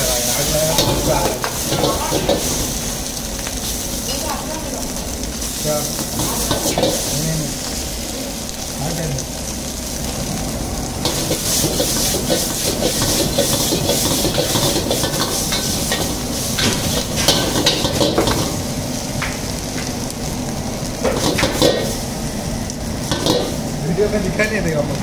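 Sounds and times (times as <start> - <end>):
food sizzling in hot oil: 0.0 - 25.0
metal ladle scraping a wok: 0.7 - 3.0, 11.0 - 18.6, 23.0 - 23.6.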